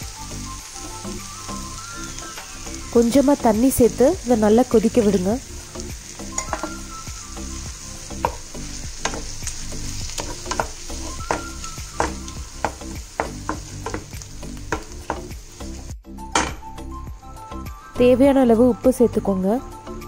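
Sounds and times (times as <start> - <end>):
food sizzling in a pan: 0.0 - 20.0
wooden spatula scraping a pan: 8.2 - 15.3.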